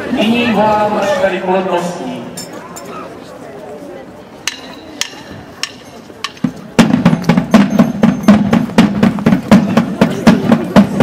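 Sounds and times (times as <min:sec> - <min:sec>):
percussion beat: 0:04.5 - 0:11.0.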